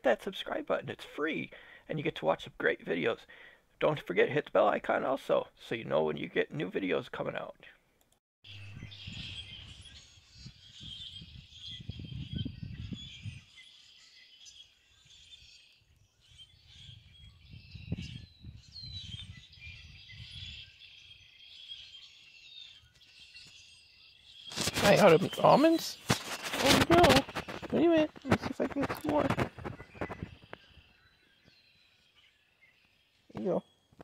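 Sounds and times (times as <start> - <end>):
birds chirping: 8.5 - 34.0.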